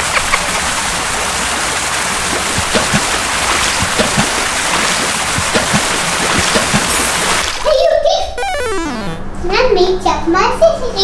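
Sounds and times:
water gurgles: 0.0 - 7.7
water rushing: 0.0 - 7.7.

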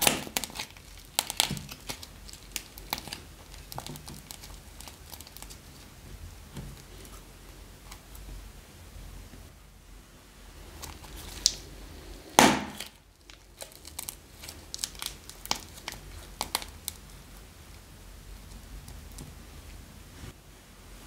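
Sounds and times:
plastic bag crinkling: 0.0 - 5.9, 10.8 - 11.7, 12.6 - 17.2.

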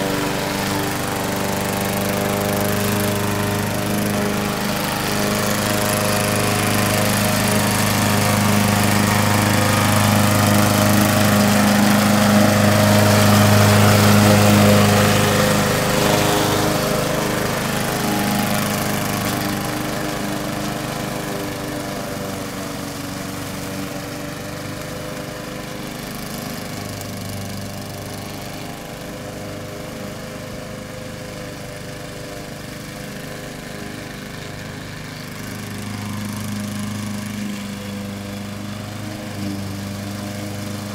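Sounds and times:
robotic lawn mower engine running: 0.0 - 40.9.

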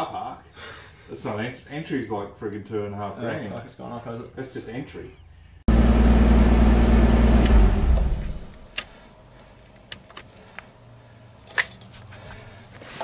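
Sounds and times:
car engine idling: 5.7 - 12.6
keys jangling: 9.9 - 10.6, 11.4 - 12.2.

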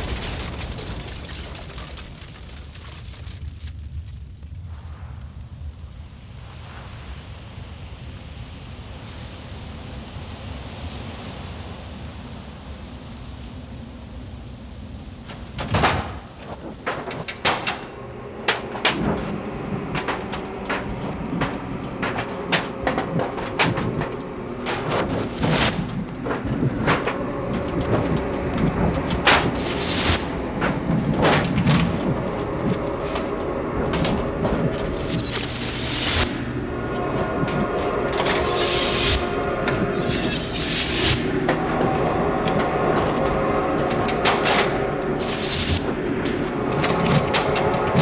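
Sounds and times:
faint sustained drone: 31.6 - 48.0.

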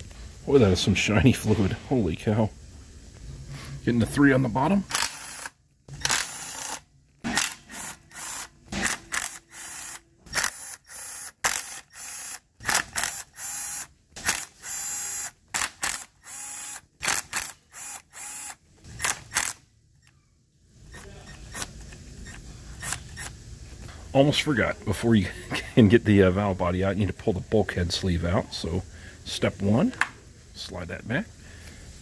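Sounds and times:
cordless driver spinning out bolts: 4.9 - 19.6.

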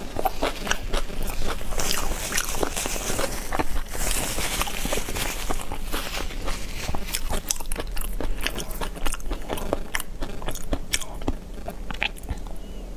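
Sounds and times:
person chewing with wet mouth clicks: 0.0 - 2.8, 5.5 - 12.6.

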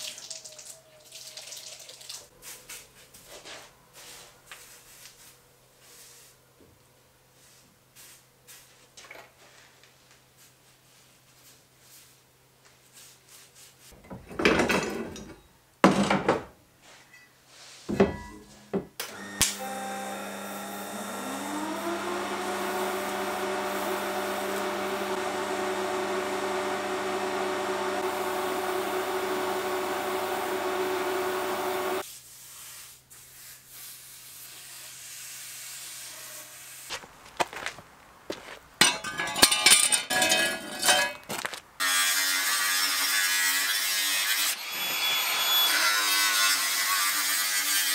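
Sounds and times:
angle grinder running: 19.1 - 32.0
welding arc buzz: 19.1 - 32.0
metal knocks and clinks: 38.8 - 41.3
metal clatter: 38.8 - 41.4.

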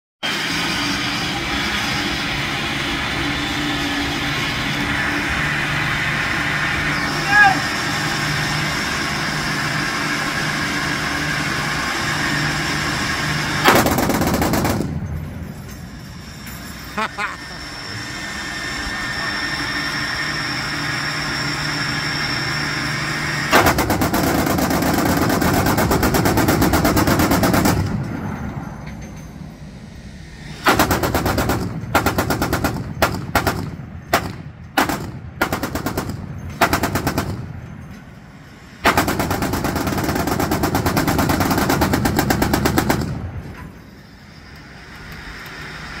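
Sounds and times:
steady mechanical hum: 0.3 - 46.0
heavy machine guns firing: 9.8 - 15.2, 23.5 - 28.1, 30.6 - 37.6, 38.8 - 43.4.

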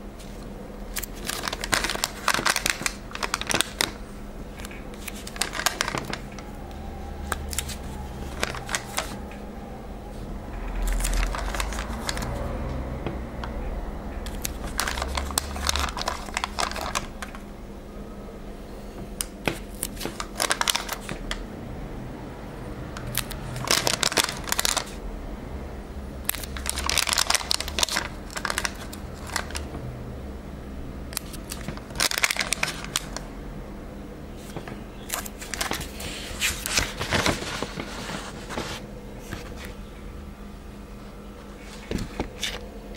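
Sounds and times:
sticker sheet crinkling: 0.3 - 6.4, 7.2 - 9.2, 10.7 - 12.4, 14.3 - 17.4, 19.5 - 21.3, 23.0 - 25.0, 26.3 - 29.7, 31.1 - 33.2, 34.4 - 39.8
low handling rumble: 4.2 - 19.2.

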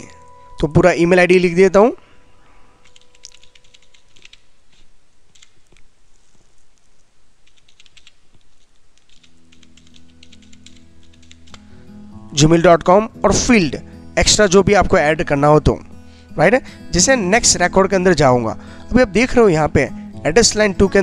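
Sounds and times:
faint music with low notes: 0.0 - 4.4, 9.2 - 21.0.

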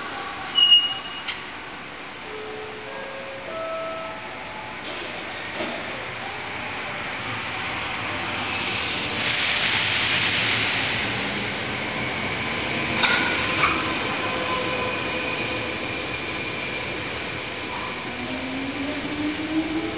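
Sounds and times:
train running past: 0.0 - 19.9.

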